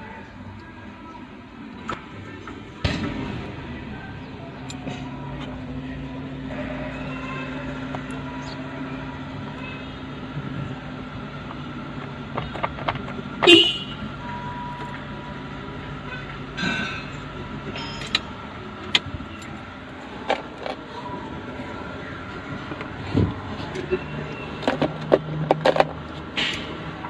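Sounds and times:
low vehicle hum: 0.0 - 27.0
horn toot: 13.4 - 14.0.

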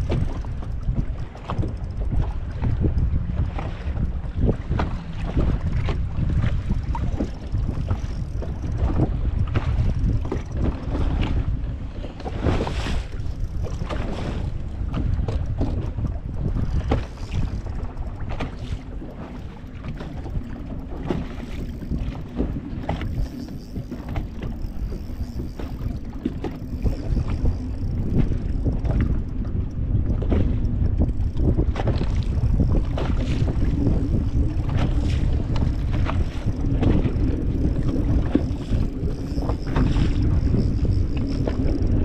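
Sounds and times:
wind buffeting microphone: 0.0 - 42.0
dense low rumble: 19.4 - 42.0.

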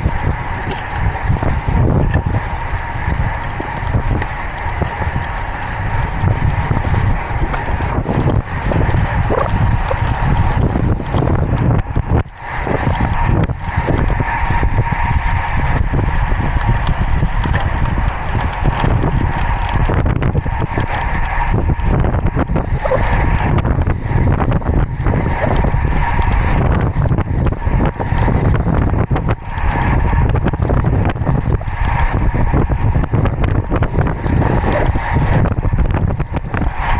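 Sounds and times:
thin steady whine: 0.0 - 36.9
tyre noise on asphalt: 0.0 - 36.9
wind buffeting microphone: 0.0 - 36.9.

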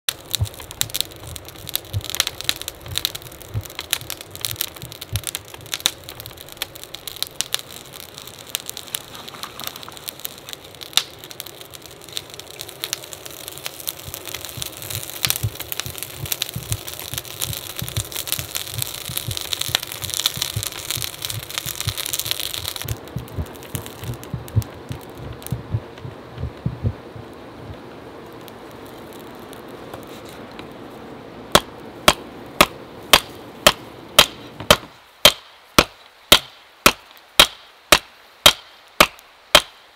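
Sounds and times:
forge fire crackling and popping: 0.0 - 39.9
dull low knocks: 14.1 - 27.8.

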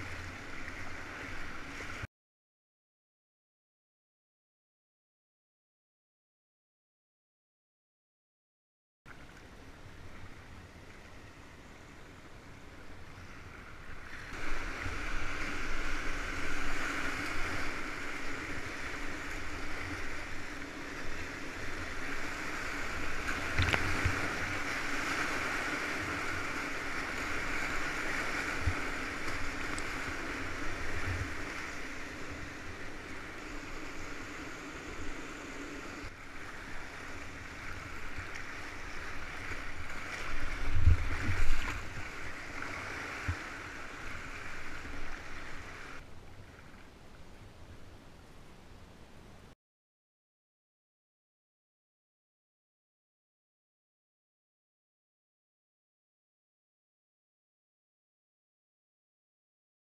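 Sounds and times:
whitewater rapids rushing: 14.2 - 46.0.

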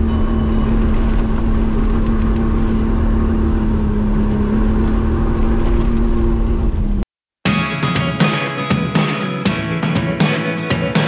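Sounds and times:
car engine droning: 0.0 - 7.1.

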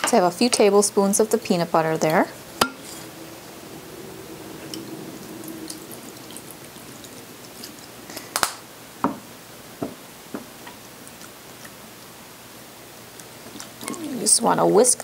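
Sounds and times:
liquid trickling into bowl: 2.1 - 8.3.

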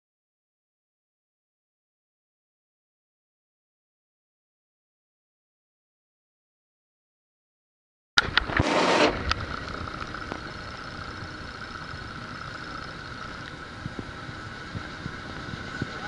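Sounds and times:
high-pitched whine: 8.2 - 16.0.

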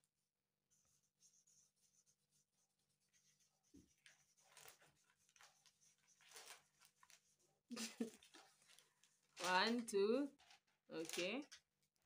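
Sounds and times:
markers scratching on paper: 0.6 - 10.7
paper rustling: 3.1 - 11.6.

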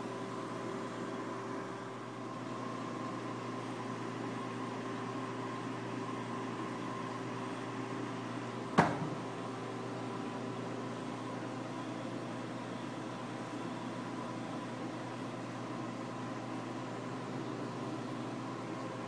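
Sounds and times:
aquarium pumps humming: 0.0 - 19.0
sharp knock: 8.8 - 9.2.

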